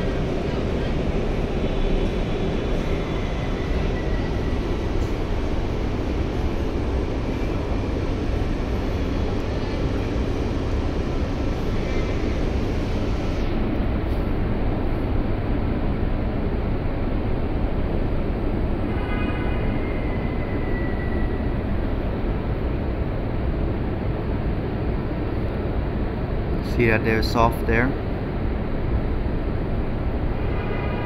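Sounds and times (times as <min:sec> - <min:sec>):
ventilation roar: 0:00.0 - 0:31.0.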